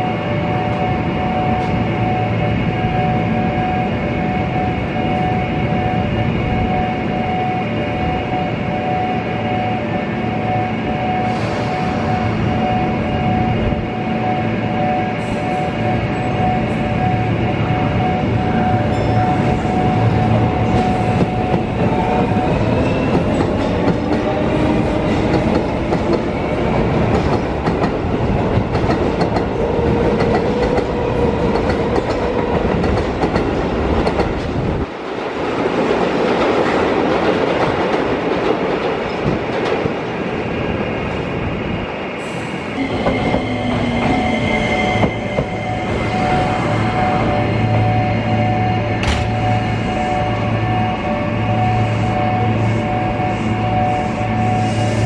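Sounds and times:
train wheels clattering on rails: 20.1s - 40.3s.

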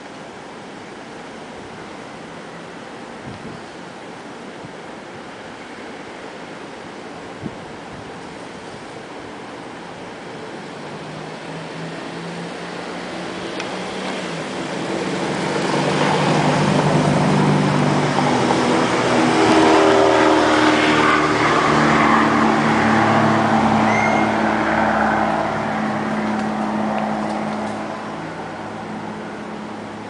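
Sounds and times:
passing vehicle engine: 10.6s - 30.0s.

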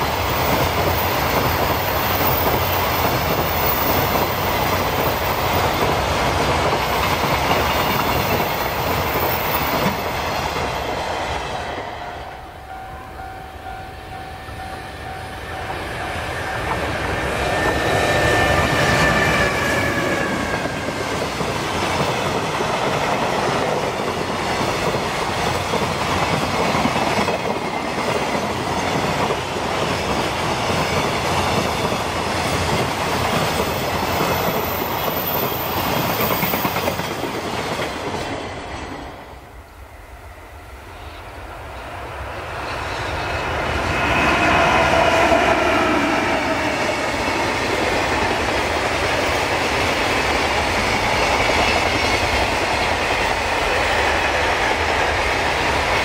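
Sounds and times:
electric locomotive whine: 0.0s - 56.0s.

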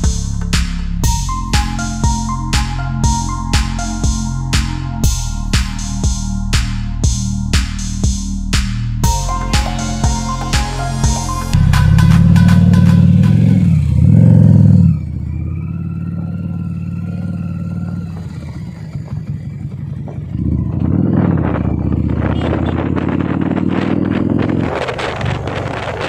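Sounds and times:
motorcycle engine: 0.0s - 26.0s
wind rushing over microphone: 18.2s - 26.0s.

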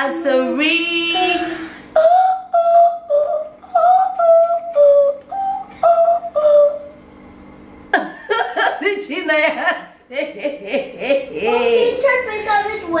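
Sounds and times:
woman singing wordless tune: 0.0s - 7.0s
woman laughing: 7.9s - 11.9s.

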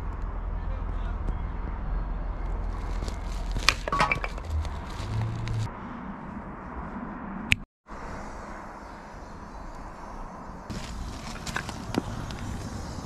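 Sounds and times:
wood splitting cracks: 2.7s - 5.6s.

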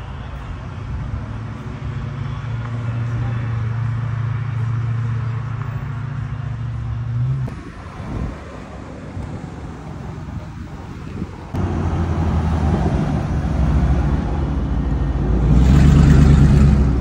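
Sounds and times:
car engine running: 1.6s - 17.0s.

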